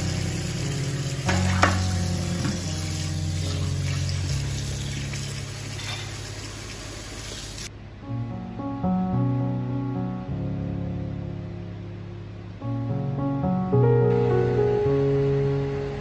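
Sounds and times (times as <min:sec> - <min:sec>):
soft background music: 0:00.0 - 0:06.6, 0:07.7 - 0:16.0
faucet water splashing in sink: 0:00.0 - 0:07.7.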